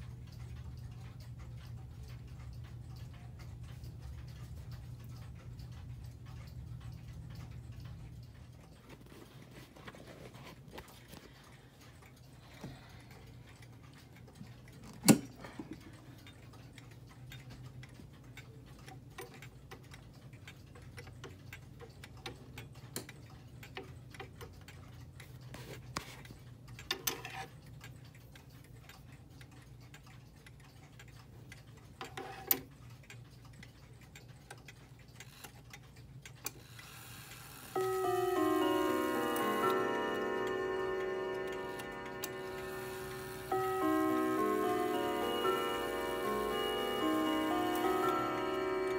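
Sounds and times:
clock ticking faintly: 0:00.0 - 0:48.9.

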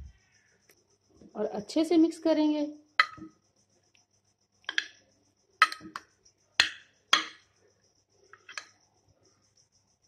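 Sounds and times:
metal spoon clinking on glass dish: 0:03.0 - 0:03.3, 0:05.6 - 0:06.0, 0:06.6 - 0:07.4, 0:08.4 - 0:08.7.

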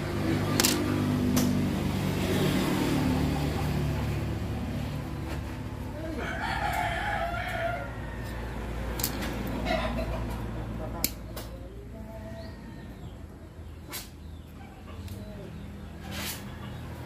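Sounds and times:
rooster crowing: 0:06.1 - 0:08.9.

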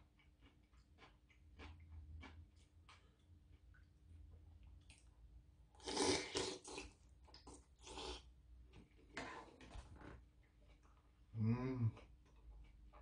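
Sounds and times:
man chewing: 0:00.0 - 0:09.6, 0:10.2 - 0:13.0
man slurping: 0:05.8 - 0:06.9.

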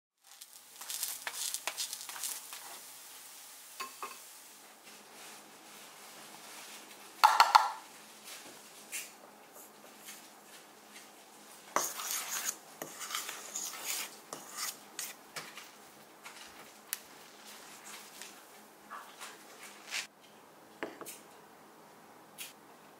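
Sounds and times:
salt scraping and clinking: 0:00.2 - 0:02.8, 0:11.8 - 0:15.7
measuring cup knocking metal bowl: 0:07.2 - 0:07.8.

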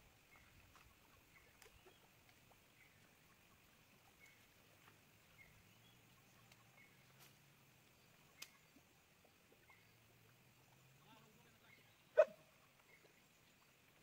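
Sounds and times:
soft ticks: 0:06.4 - 0:08.6.

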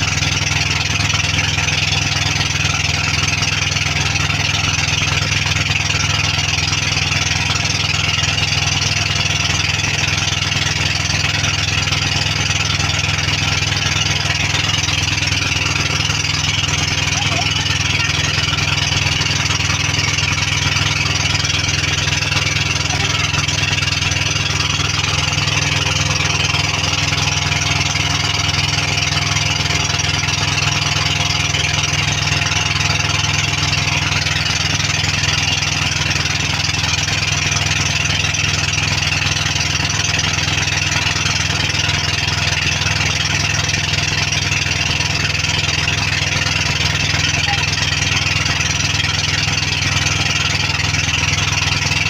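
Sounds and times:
boat engine droning: 0:00.0 - 0:52.0.

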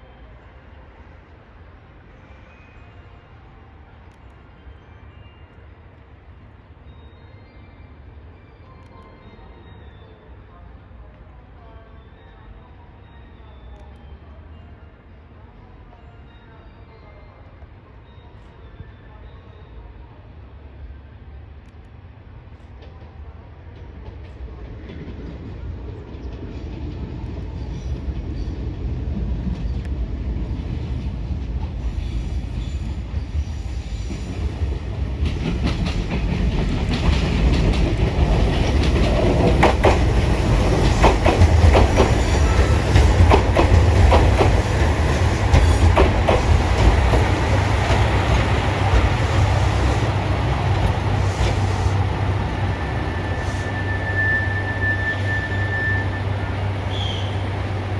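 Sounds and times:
diesel train engine rumble: 0:17.3 - 0:57.9
wheels clicking over rail joints: 0:35.1 - 0:49.5
high thin squeal: 0:52.7 - 0:57.4.

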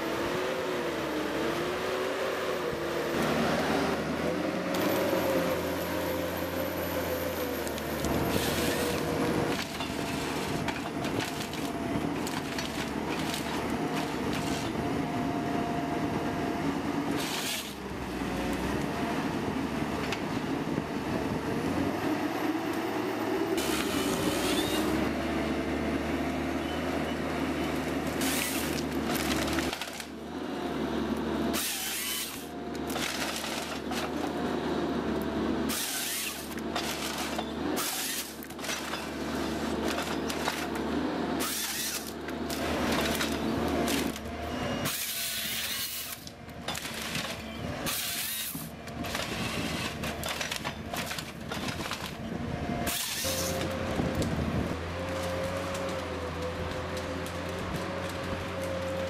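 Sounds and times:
diesel engine and hydraulics droning: 0:00.0 - 0:59.0
chainsaw cutting bursts: 0:31.5 - 0:32.5, 0:35.7 - 0:37.2, 0:41.4 - 0:42.2.

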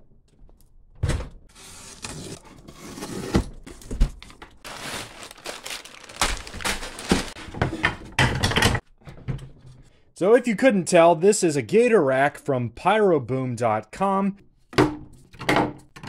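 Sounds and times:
packing paper rustling: 0:03.6 - 0:07.6.

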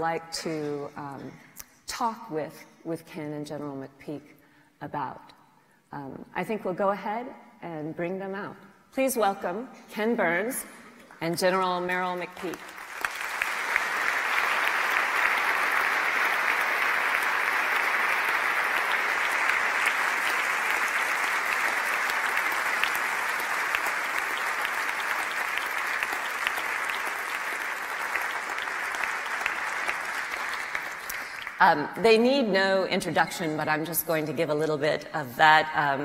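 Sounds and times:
audience applauding: 0:12.4 - 0:31.6.

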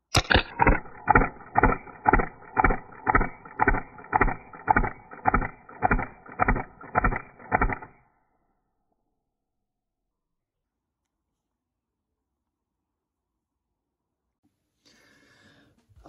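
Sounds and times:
airsoft pistol shots: 0:00.1 - 0:08.0.

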